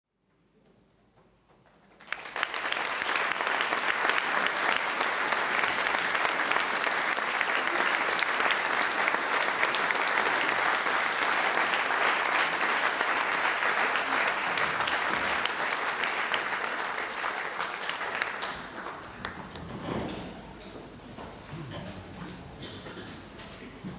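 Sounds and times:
audience applauding: 1.9 - 19.7.

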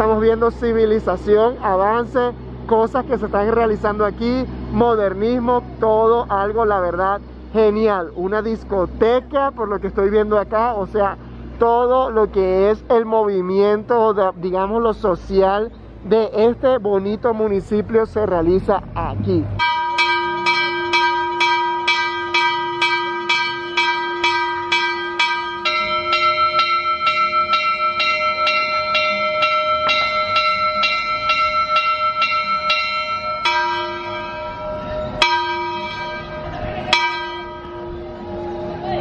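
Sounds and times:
church bells ringing: 19.6 - 39.0.

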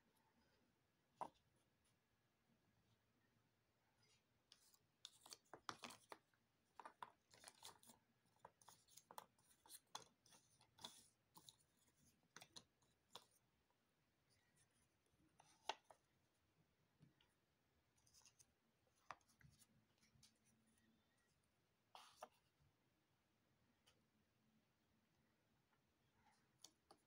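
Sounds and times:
jigsaw pieces rustling and scraping: 4.6 - 13.5.

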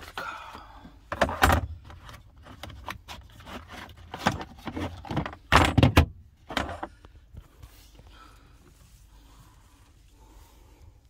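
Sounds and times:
jars and cans clunking and rattling: 1.1 - 7.0.

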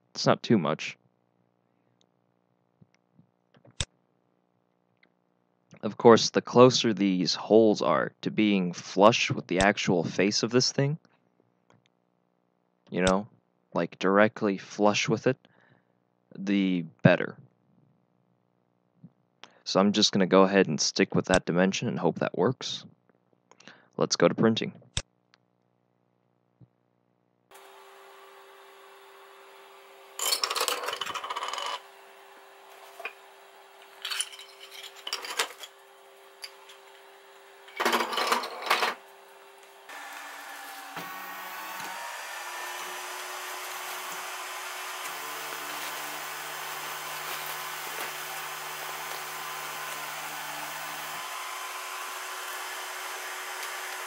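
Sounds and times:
fans and stepper motors whirring: 27.5 - 54.0
machine hum: 27.5 - 54.0
clattering: 30.2 - 31.8, 33.9 - 35.8, 37.7 - 39.0.

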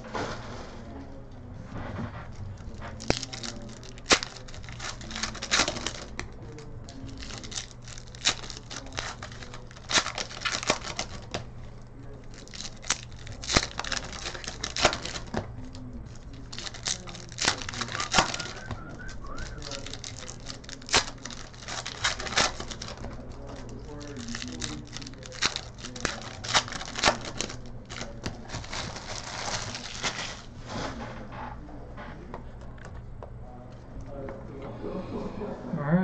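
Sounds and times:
low steady hum: 0.0 - 36.0
foil wrappers tearing and crinkling: 2.6 - 30.9.

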